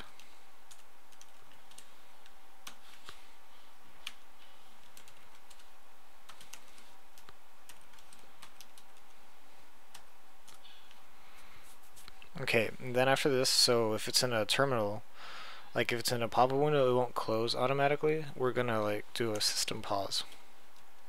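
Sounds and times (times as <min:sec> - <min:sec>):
computer keyboard typing: 0:00.0 - 0:03.2, 0:04.0 - 0:09.2, 0:09.9 - 0:11.0
steady background hiss: 0:00.0 - 0:21.0.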